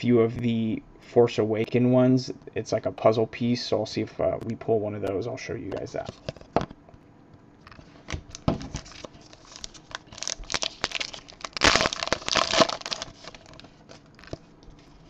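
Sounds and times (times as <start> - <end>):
plastic wrapper crinkling and tearing: 7.7 - 15.0.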